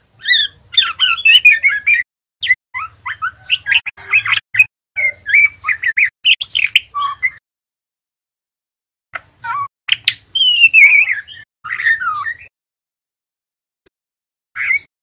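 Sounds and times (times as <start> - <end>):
bird chattering and twittering: 0.2 - 7.4, 9.2 - 12.5, 14.6 - 14.9.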